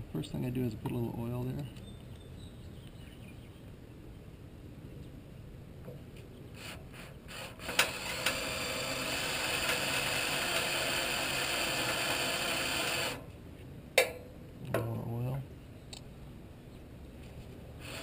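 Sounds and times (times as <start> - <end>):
cordless drill boring into steel: 6.6 - 13.2.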